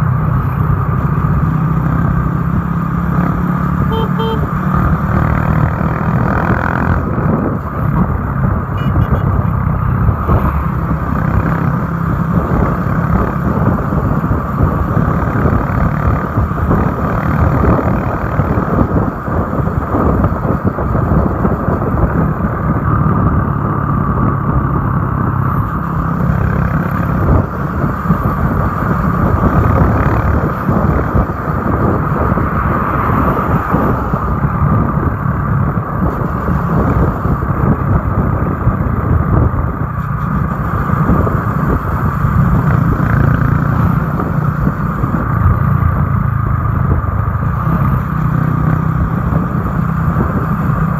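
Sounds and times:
motorcycle engine running: 0:00.0 - 0:50.9
wind over microphone: 0:00.0 - 0:50.9.

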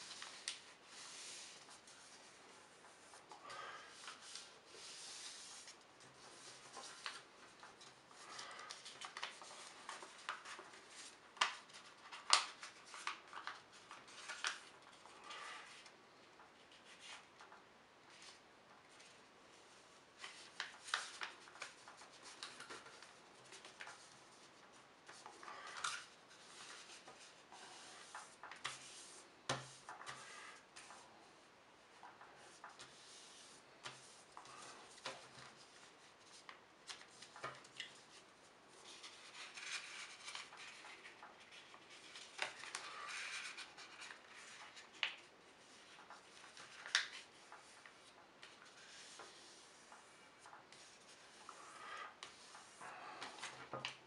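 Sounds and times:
paper rustling while folded: 0:00.0 - 0:15.9, 0:18.1 - 0:31.1, 0:32.0 - 0:54.0
paper crinkles: 0:03.6 - 0:15.7, 0:20.2 - 0:27.3, 0:33.8 - 0:54.0.

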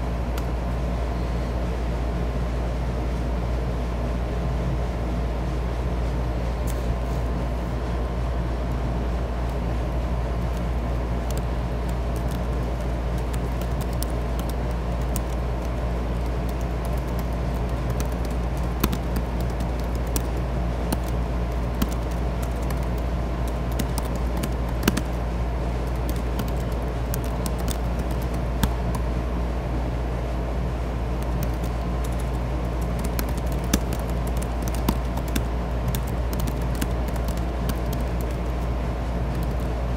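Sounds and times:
steady low hum: 0:00.0 - 0:39.9
computer keyboard keystrokes: 0:10.5 - 0:25.2, 0:25.8 - 0:29.0, 0:31.2 - 0:38.6, 0:39.3 - 0:39.7.

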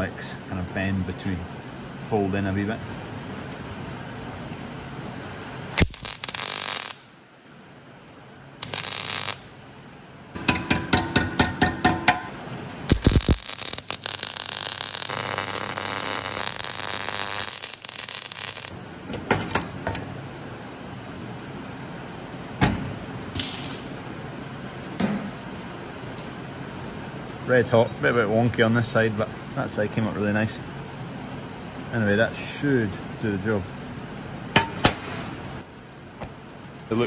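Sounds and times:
welder arc crackling: 0:05.7 - 0:07.2, 0:08.6 - 0:09.6, 0:12.9 - 0:18.8.

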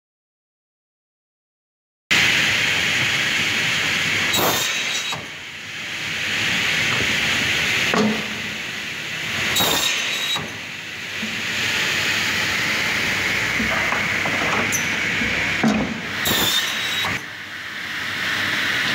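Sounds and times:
saw steady hiss: 0:14.9 - 0:17.2
saw loud bursts: 0:16.1 - 0:17.2.

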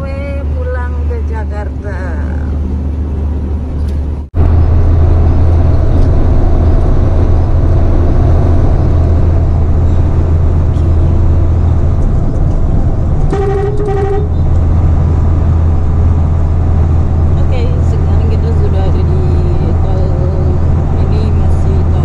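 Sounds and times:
road noise: 0:00.0 - 0:22.0
truck engine drone: 0:00.0 - 0:22.0
vehicle horn toot: 0:13.3 - 0:14.5.

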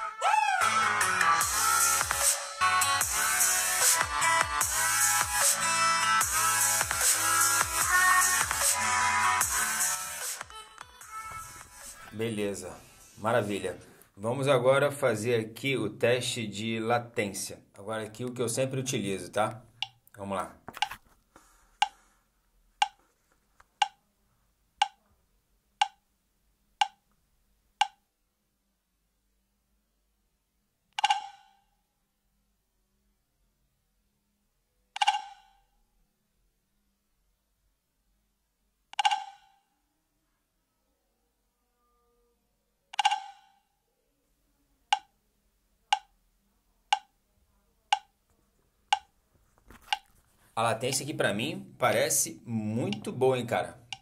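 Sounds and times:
sharp short clicks: 0:43.0 - 0:43.5.

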